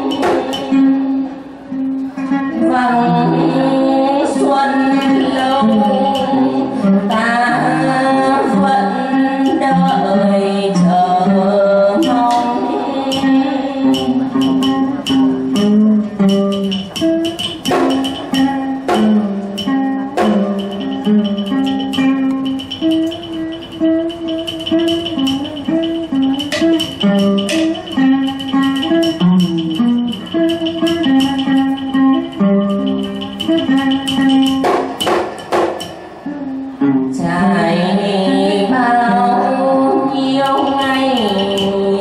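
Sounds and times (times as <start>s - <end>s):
person singing: 0.0s - 1.4s, 2.2s - 34.7s, 36.2s - 42.0s
plucked-string melody: 0.0s - 42.0s
sharp percussive clicks: 13.9s - 36.1s.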